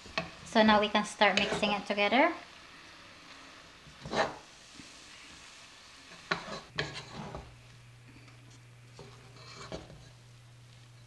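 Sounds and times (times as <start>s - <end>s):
noodles scraping against metal pot: 3.9s - 4.5s, 6.1s - 7.5s, 8.9s - 10.2s
low steady hum: 6.6s - 11.0s.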